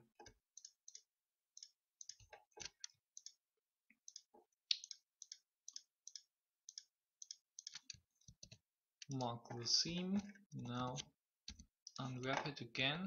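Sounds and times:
computer mouse clicks: 4.1s - 9.2s.

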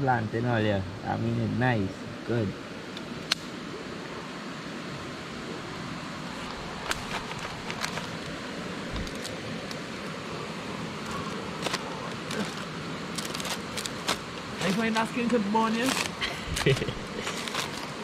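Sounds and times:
river rushing: 2.0s - 18.0s
sharp pops of fire: 3.0s - 3.6s
wood fire crackling: 6.2s - 18.0s.

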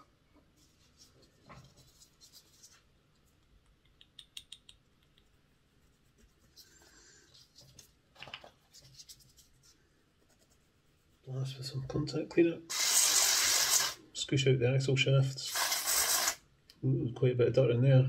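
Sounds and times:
cotton bud scratching and rubbing: 5.3s - 7.9s, 8.6s - 11.8s, 12.7s - 14.0s, 15.4s - 16.4s.

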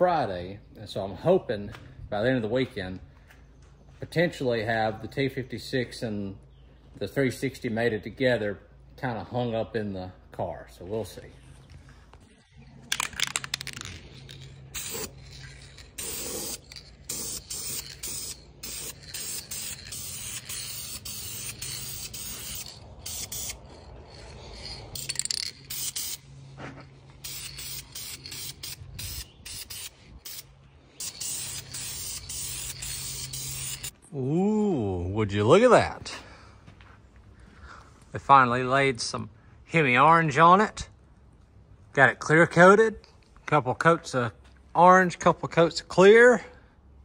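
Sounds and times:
aerosol spray can hissing: 14.8s - 15.4s, 16.0s - 23.6s, 24.5s - 26.2s, 27.2s - 33.9s.

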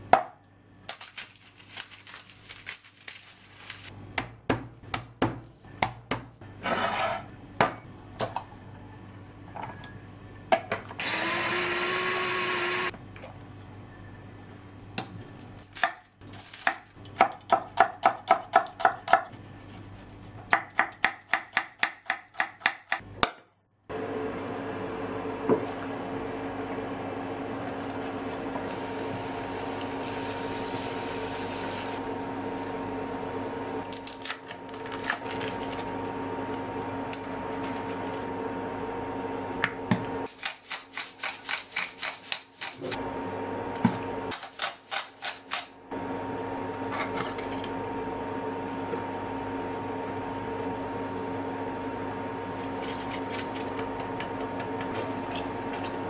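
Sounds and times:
electric hum: 23.9s - 40.3s, 45.8s - 56.0s
garlic sizzling in oil: 28.6s - 32.0s.

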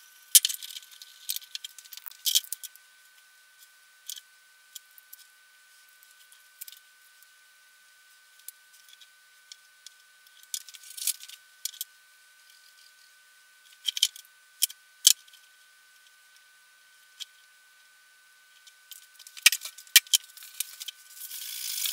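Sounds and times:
small parts clicking and tapping: 0.3s - 2.8s, 3.6s - 5.3s, 6.0s - 6.8s, 8.4s - 13.0s, 13.6s - 15.4s, 18.5s - 21.9s.

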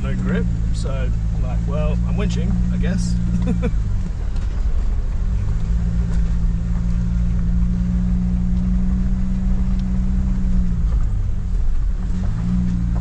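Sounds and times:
engine droning: 0.0s - 13.0s
tyres rumbling on dirt track: 0.0s - 13.0s.

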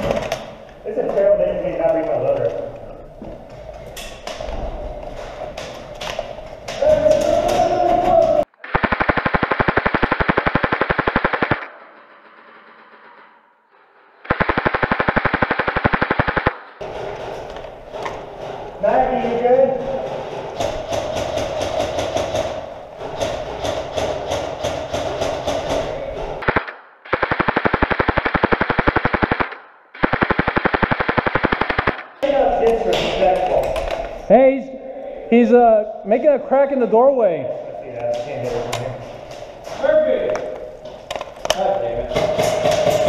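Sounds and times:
airsoft gun firing full-auto: 8.7s - 11.7s, 14.3s - 16.5s, 26.5s - 32.1s.

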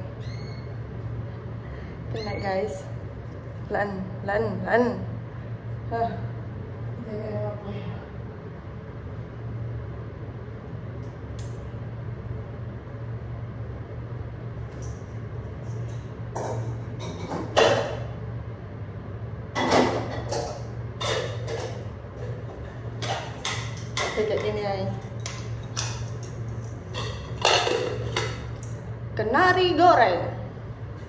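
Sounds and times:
steady low hum: 0.0s - 31.0s
cookware and cupboards handled: 19.6s - 28.5s.

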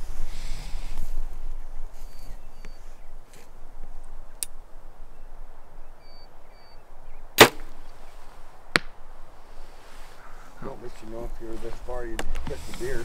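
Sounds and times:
arrow striking target: 7.4s - 7.8s
bow string snapping: 7.4s - 7.8s.

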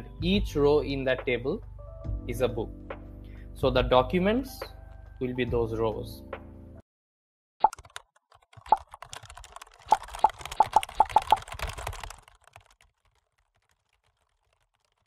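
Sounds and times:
keyboard-like clicks and taps: 7.6s - 12.8s.

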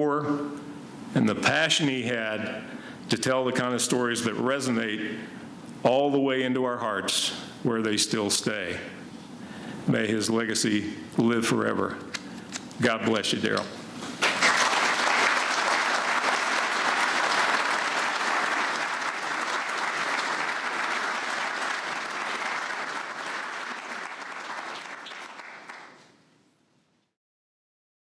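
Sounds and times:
audience applauding: 14.2s - 26.1s.

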